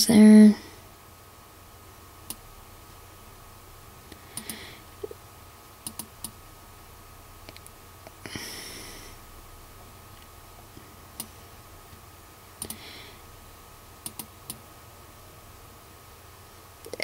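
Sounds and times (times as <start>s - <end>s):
faint steady hum: 0.0s - 17.0s
computer mouse clicking: 5.8s - 6.4s, 12.6s - 12.8s, 14.0s - 14.6s.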